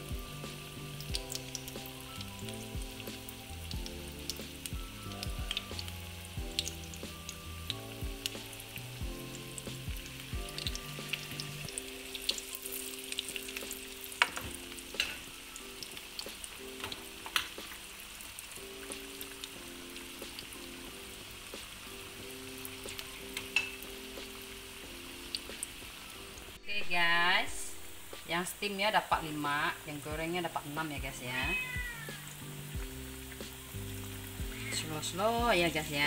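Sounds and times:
background music: 0.0 - 36.0
oil sizzling in a wok: 0.0 - 36.0
sharp crackles and pops: 1.0 - 20.7.

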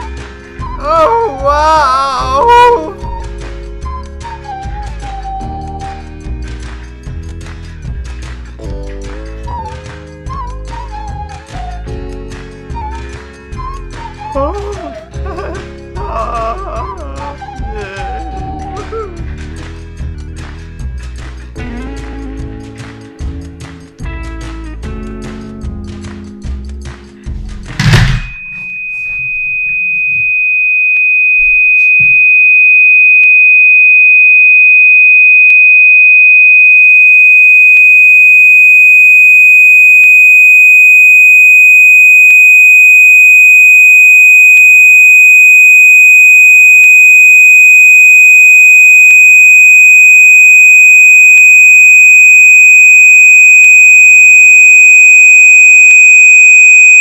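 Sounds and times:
high-pitched electronic tone: 0.0 - 3.3, 27.8 - 57.0.

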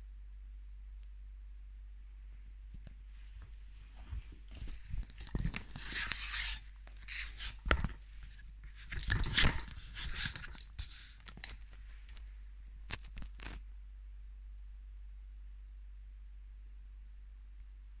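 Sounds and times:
phone brushing against clothing: 2.8 - 12.2
phone handling rustling and scraping: 4.3 - 13.6.

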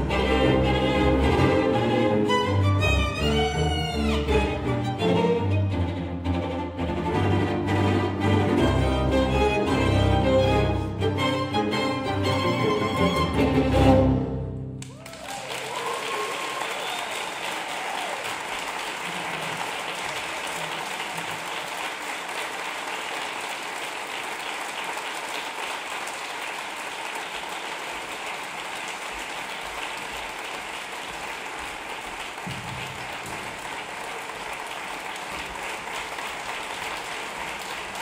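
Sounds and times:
audience applauding: 14.8 - 38.0.

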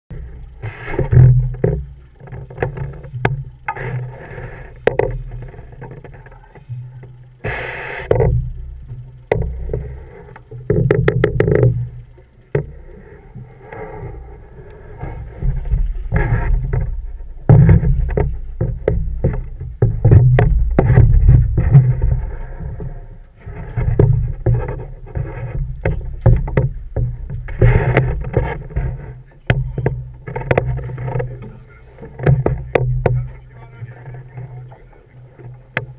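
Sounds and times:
boat low rumble: 0.1 - 35.9
clicks and knocks: 8.1 - 12.8, 14.7 - 23.0, 23.6 - 33.4.

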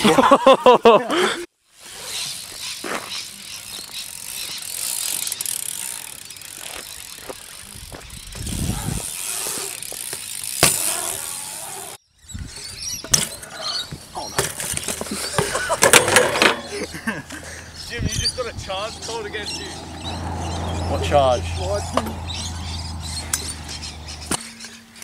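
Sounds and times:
bike rattling: 1.7 - 25.0
bike tyres rolling on concrete: 1.7 - 25.0
bike landing knock: 9.9 - 11.3, 13.0 - 16.7.

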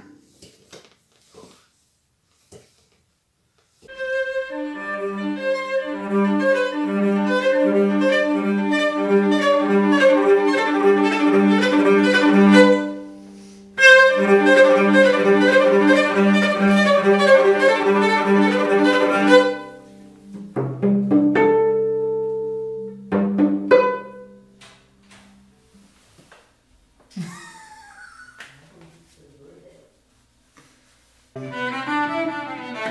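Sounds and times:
solo cello bowed: 3.9 - 13.2, 13.8 - 20.2, 31.4 - 32.9.

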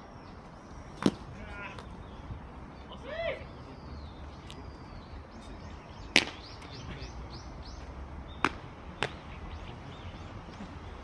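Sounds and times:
bird chirping: 0.0 - 11.0
sharp smacks: 6.1 - 6.4, 8.4 - 9.3.

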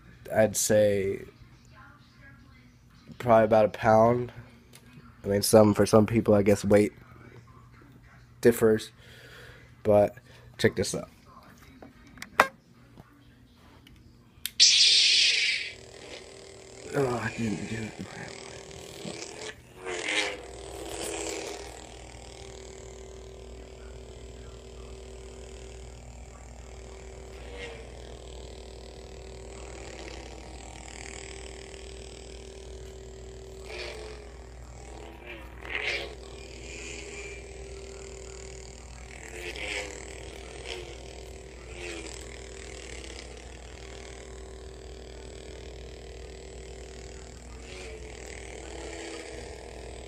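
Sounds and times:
lightsaber electronic hum: 14.4 - 50.0
lightsaber swing sounds: 14.5 - 16.3.

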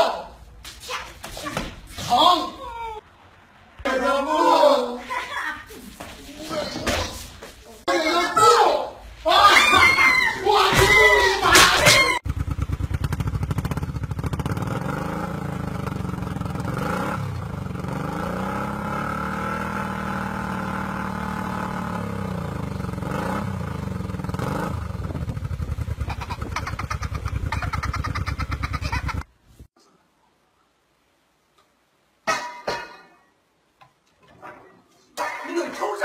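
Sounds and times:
motorcycle engine revving: 12.2 - 29.0.

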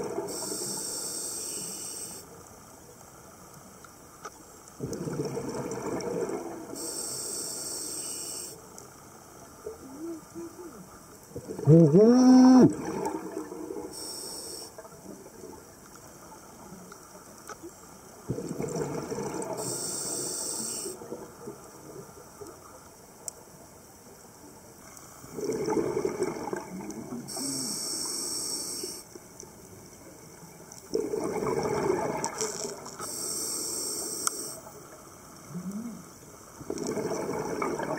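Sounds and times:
faint water noise: 0.0 - 37.9
regulator air hiss: 0.3 - 2.4, 6.8 - 8.7, 13.9 - 14.8, 19.6 - 21.0, 27.3 - 29.1, 33.0 - 34.7
exhaled bubbles rushing: 4.8 - 6.8, 11.4 - 13.9, 18.3 - 19.6, 25.3 - 27.3, 30.9 - 32.8, 36.6 - 37.9.

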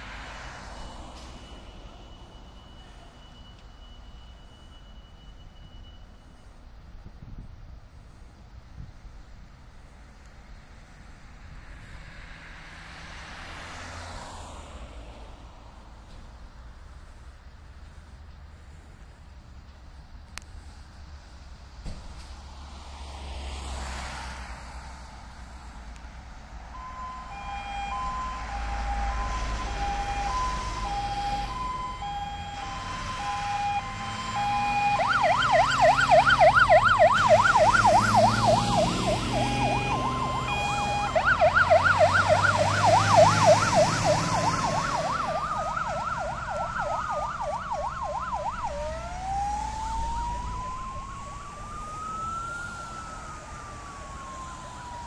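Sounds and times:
fire engine siren: 0.0 - 6.6, 11.9 - 15.2, 26.6 - 55.0
truck engine rumbling: 24.9 - 55.0.

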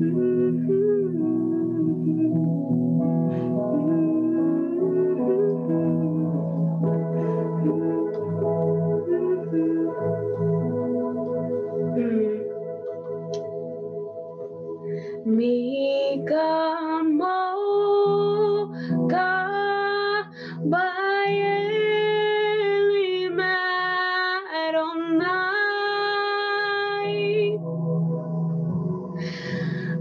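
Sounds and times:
woman singing: 0.0 - 2.7, 3.7 - 6.6, 7.6 - 10.5, 12.0 - 12.6, 15.2 - 27.6
sustained keyboard chords: 0.0 - 30.0.

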